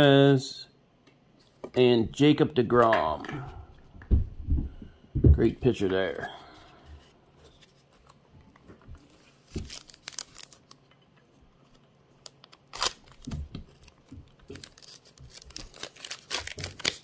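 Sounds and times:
foil wrapper crinkling: 0:09.1 - 0:10.9, 0:12.2 - 0:17.0
foil wrapper ripping: 0:09.3 - 0:10.8, 0:12.4 - 0:17.0.

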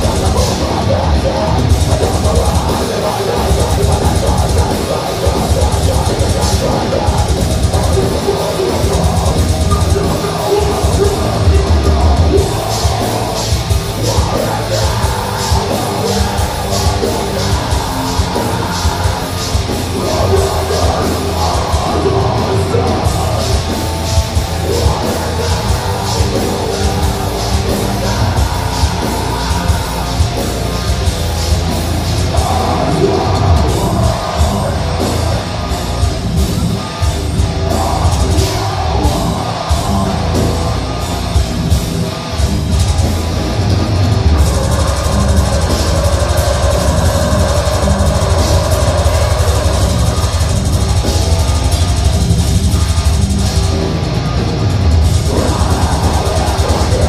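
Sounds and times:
distorted electric guitars: 0:00.0 - 0:57.0
fast hard-hit drums: 0:00.0 - 0:57.0
harsh screamed vocals: 0:00.0 - 0:57.0.

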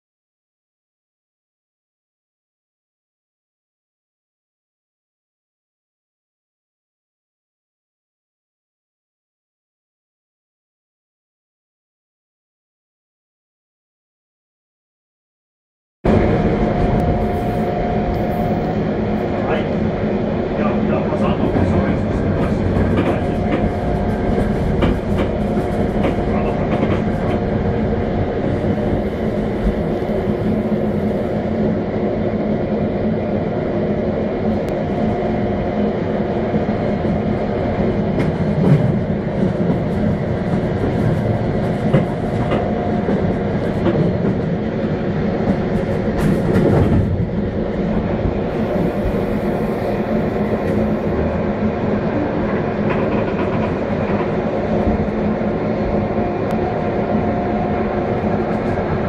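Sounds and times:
electric train rolling: 0:16.1 - 0:59.0.

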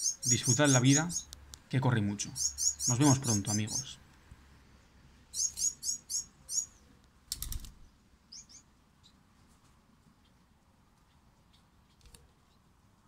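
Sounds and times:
finches chirping: 0:00.0 - 0:01.3, 0:02.2 - 0:04.0, 0:05.3 - 0:06.8, 0:08.3 - 0:09.2.

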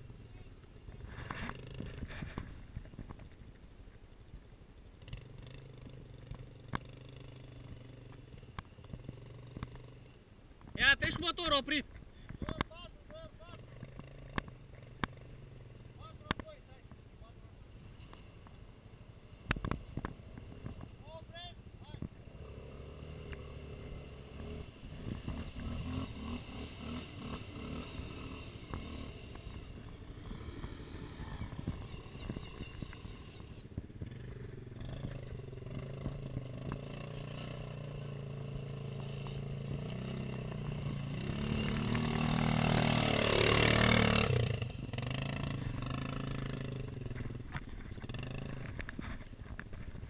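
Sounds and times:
quad bike engines running: 0:00.0 - 0:50.0
engine revving with rushing noise: 0:13.4 - 0:16.6, 0:19.2 - 0:49.1.

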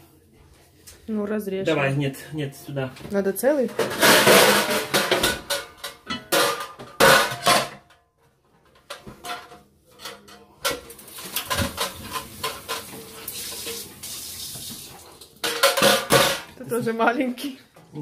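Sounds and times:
metal trays and utensils clattering: 0:03.6 - 0:08.0, 0:08.6 - 0:13.9, 0:15.2 - 0:17.1.

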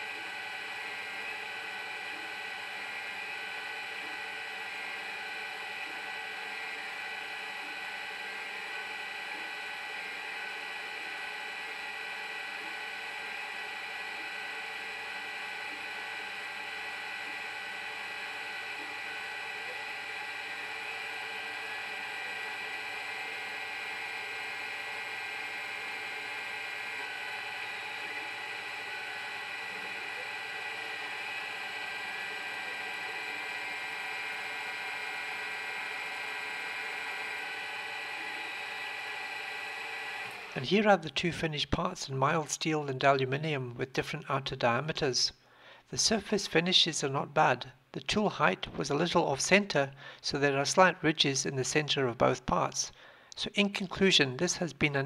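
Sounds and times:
metal lathe whirring: 0:00.0 - 0:40.7
stepper motors whining: 0:00.0 - 0:40.9.

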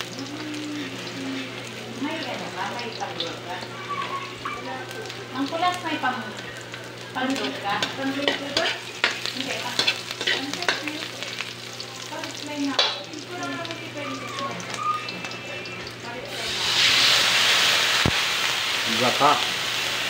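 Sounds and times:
garlic and onion sizzling in oil: 0:00.0 - 0:20.0
metal ladle scraping a wok: 0:07.4 - 0:10.9.

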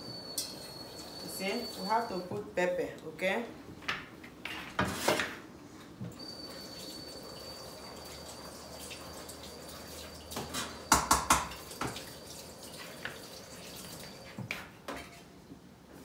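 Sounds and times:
thin high whine: 0:00.0 - 0:02.4, 0:06.1 - 0:11.1.

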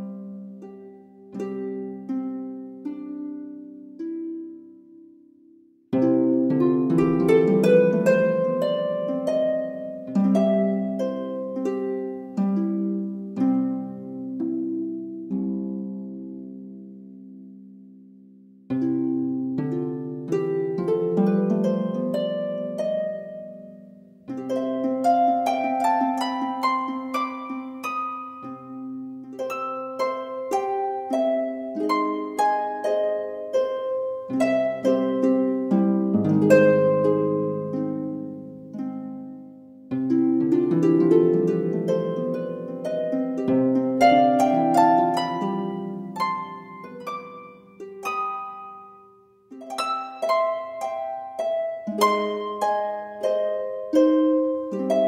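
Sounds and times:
plucked harp-like notes: 0:00.0 - 0:55.0.

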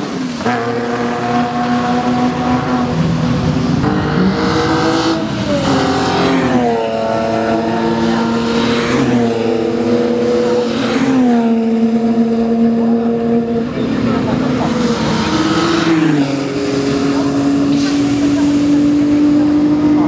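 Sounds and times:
race car engines at high revs: 0:00.0 - 0:20.0
tyres hissing through spray: 0:14.8 - 0:19.3.

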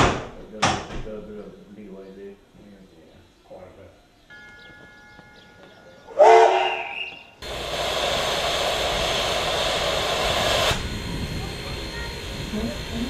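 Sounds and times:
steam locomotive whistle: 0:06.1 - 0:10.8
steam hissing: 0:06.2 - 0:13.0.

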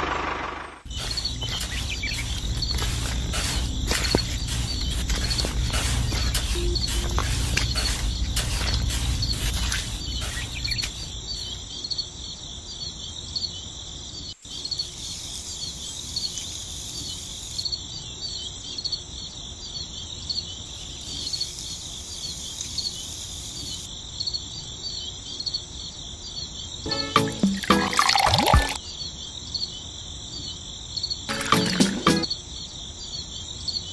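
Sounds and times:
crickets chirping: 0:00.8 - 0:33.9
sand scraping: 0:00.9 - 0:11.6.

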